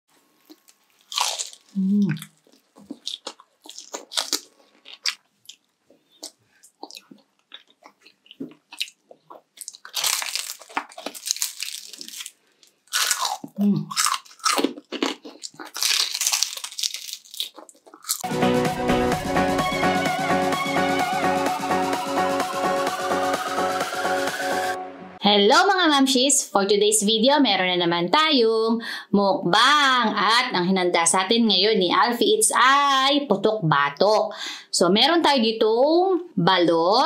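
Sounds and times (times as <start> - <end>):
crunching and chewing: 0.3 - 18.2
electronic dance music: 18.2 - 25.2.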